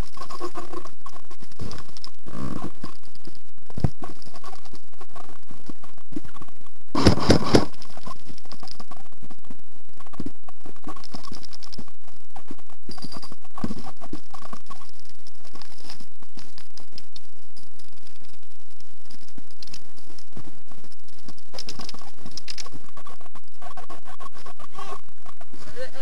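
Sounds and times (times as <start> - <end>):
airsoft gun shots: 7.0 - 7.7.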